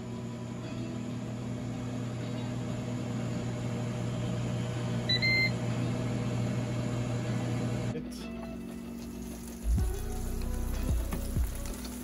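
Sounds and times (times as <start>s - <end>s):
cooker fan humming: 0.0s - 12.0s
electronic beep: 5.1s - 5.6s.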